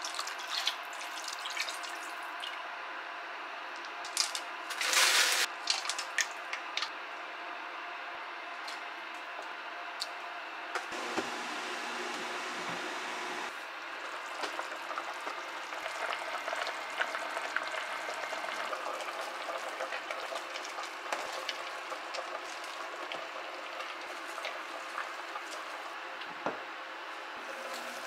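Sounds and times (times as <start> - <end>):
broth bubbling in a pot: 13.5 - 26.3.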